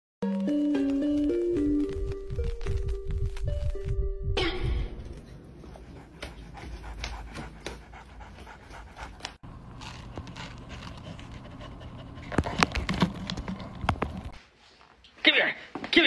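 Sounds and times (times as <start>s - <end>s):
dog panting: 5.2s - 13.0s.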